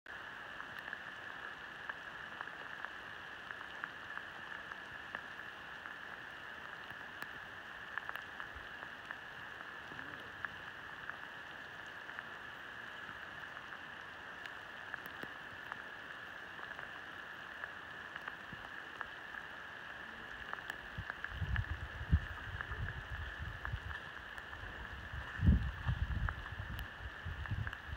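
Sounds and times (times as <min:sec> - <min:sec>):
steady high hiss: 0:00.1 - 0:27.9
sheep hooves on damp leaves: 0:20.4 - 0:27.7
low rumbles on microphone: 0:20.8 - 0:27.9.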